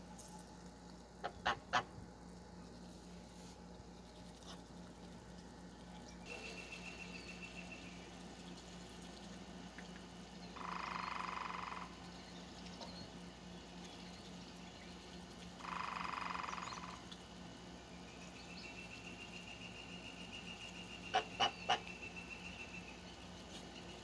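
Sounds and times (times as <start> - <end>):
frog trilling: 10.6 - 12.0, 15.6 - 17.0.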